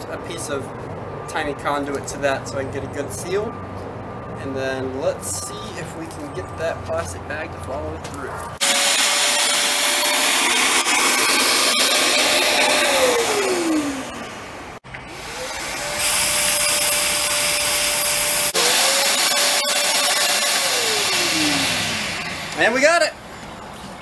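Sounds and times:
shop vacuum motor whine: 0:08.6 - 0:14.2, 0:15.1 - 0:22.6.

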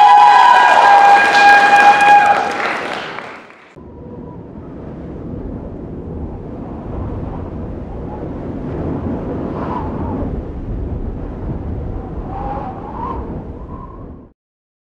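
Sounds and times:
deep steady rumbling: 0:03.8 - 0:14.3.

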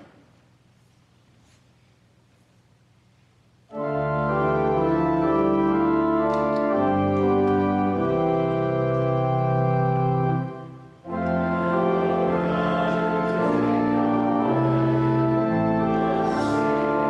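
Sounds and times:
church organ chords: 0:03.7 - 0:17.0.

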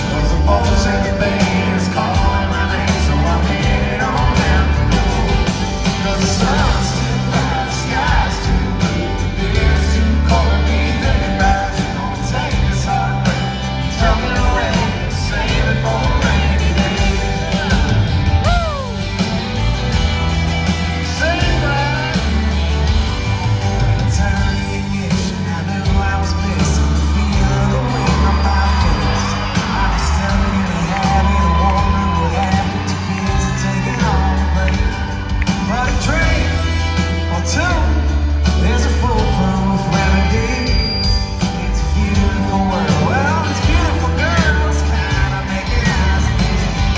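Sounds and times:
man singing: 0:00.0 - 0:19.6, 0:20.8 - 0:46.9
country-rock band playing live: 0:00.0 - 0:46.9
lead vocal holding long note: 0:24.0 - 0:46.9.

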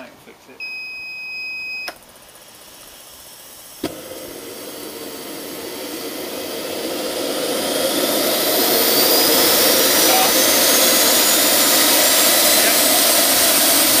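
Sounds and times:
jet turbine roar and whine: 0:01.9 - 0:14.0
jet turbine ignition pop: 0:03.8 - 0:14.0.

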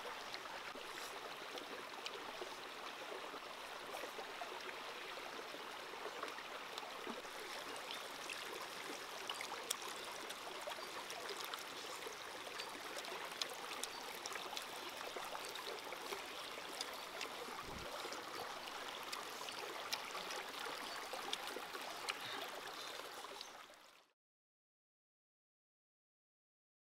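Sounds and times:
stream running over rocks: 0:00.0 - 0:24.0.

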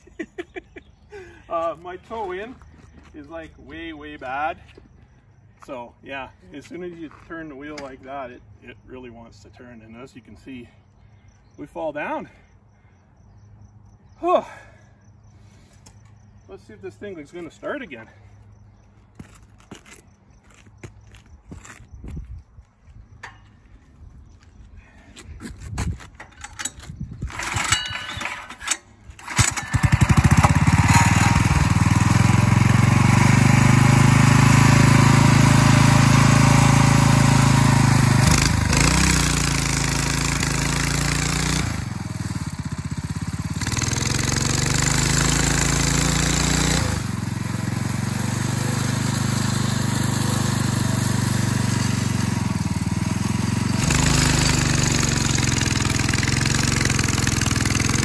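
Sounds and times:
small engine starting and running: 0:26.2 - 0:58.0.

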